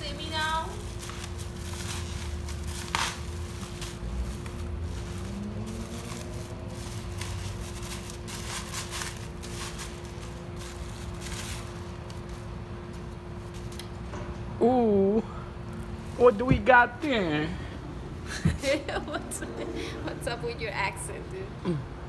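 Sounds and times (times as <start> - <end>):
bubble wrap crinkling: 0.0 - 13.8
steady low hum: 0.0 - 22.0.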